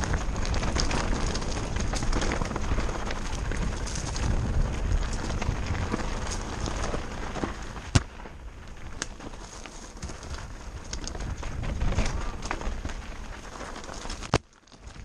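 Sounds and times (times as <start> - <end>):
heavy rumble: 0.0 - 14.3
bike rattling: 0.0 - 15.0
bike tyres crunching over stones: 0.0 - 15.0.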